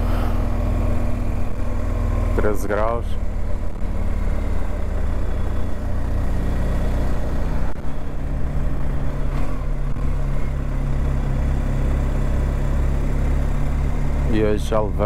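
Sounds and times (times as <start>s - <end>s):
motorcycle engine running at low revs: 0.0s - 15.0s.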